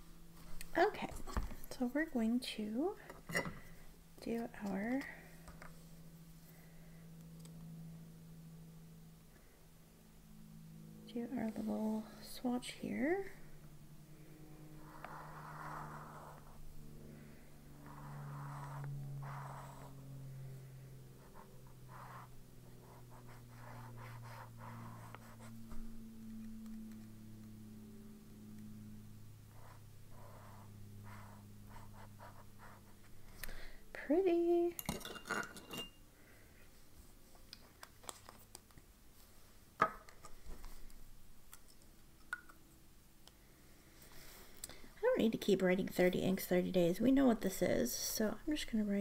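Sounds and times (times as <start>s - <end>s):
steady low hum: 0.0s - 49.0s
pen scratching on paper: 14.8s - 16.6s, 17.8s - 20.0s, 21.2s - 25.7s, 29.5s - 33.0s.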